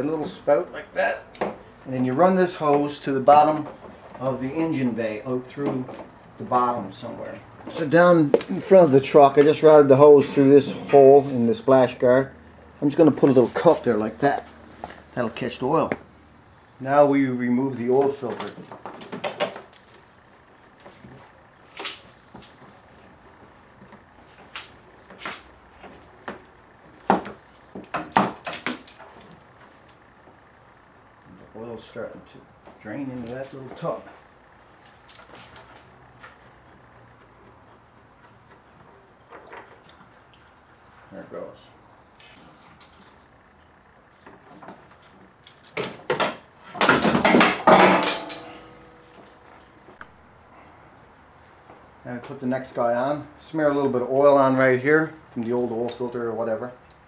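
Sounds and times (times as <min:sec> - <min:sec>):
short metallic ring: 0:47.8 - 0:49.2.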